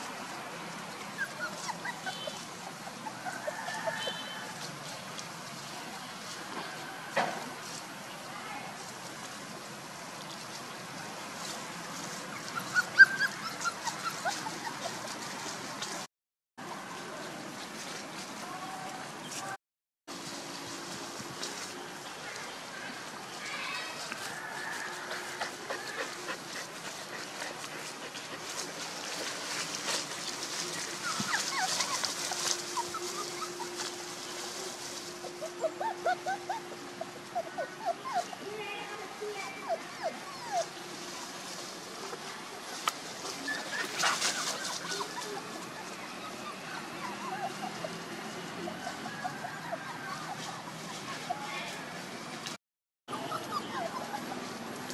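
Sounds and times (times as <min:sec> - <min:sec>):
rustling: 0:00.0 - 0:16.1, 0:17.5 - 0:37.5, 0:40.3 - 0:46.0
puppies squeaking and yelping: 0:01.0 - 0:04.6, 0:12.0 - 0:15.7, 0:25.1 - 0:38.4, 0:39.2 - 0:41.6, 0:42.7 - 0:51.6, 0:53.1 - 0:54.9.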